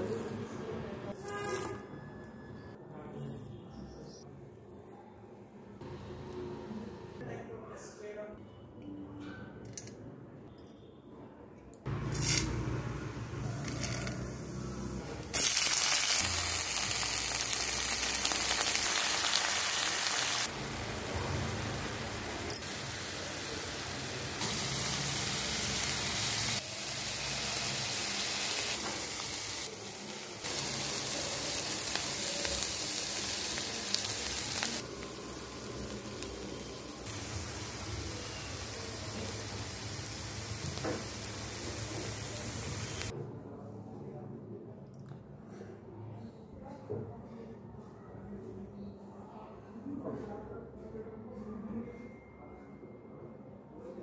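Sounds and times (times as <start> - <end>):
oil sizzling in a pan: 12.1 - 43.1.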